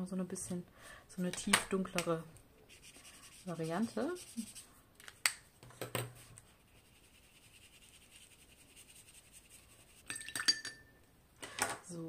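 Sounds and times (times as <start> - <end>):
brush scrubbing on paper: 2.7 - 4.7, 6.5 - 10.0.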